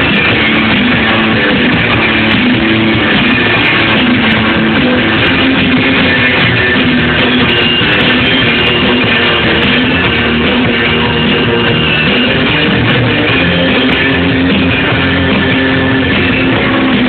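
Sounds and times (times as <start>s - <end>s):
drums: 0.0s - 17.0s
electric guitar: 0.0s - 17.0s
live rock band playing: 0.0s - 17.0s.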